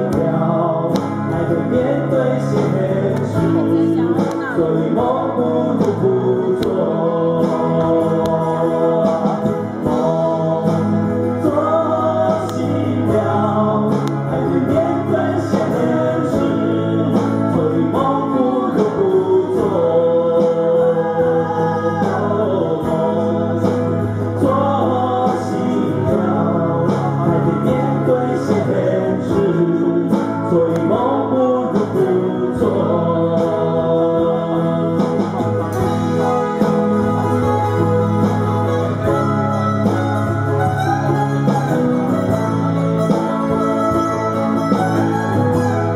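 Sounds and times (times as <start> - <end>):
two men singing: 0.0 - 37.9
strummed guitar: 0.0 - 45.9.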